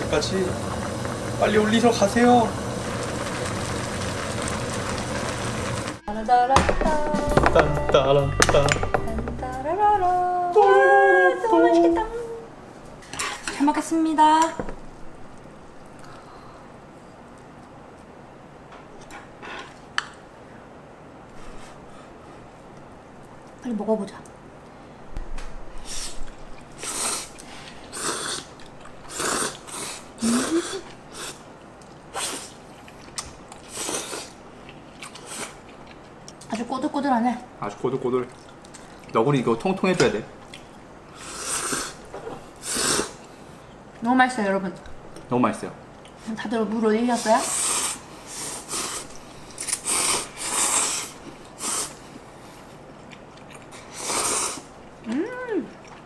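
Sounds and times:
person humming: 6.0s - 12.5s
people slurping noodles: 26.8s - 31.4s, 32.1s - 34.4s, 41.1s - 43.3s, 47.2s - 52.0s, 53.7s - 54.7s.

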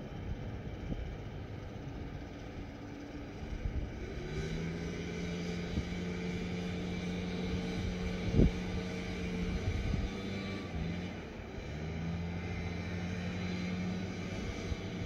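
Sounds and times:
muffled low handling rumble: 0.0s - 4.0s
steady engine hum: 0.0s - 15.0s.

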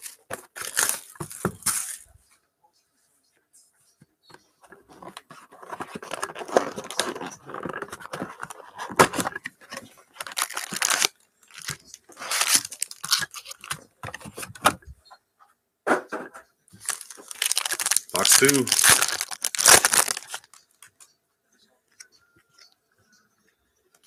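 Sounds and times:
foil packs crinkling: 0.0s - 2.1s, 5.8s - 9.4s, 10.1s - 14.4s, 16.8s - 20.8s
cardboard box tearing: 10.2s - 13.7s, 16.8s - 20.5s.

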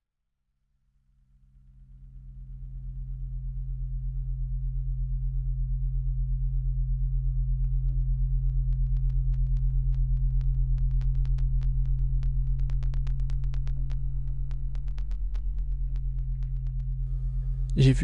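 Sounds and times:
power lines humming: 2.8s - 18.0s
electrical crackles: 8.8s - 17.8s.

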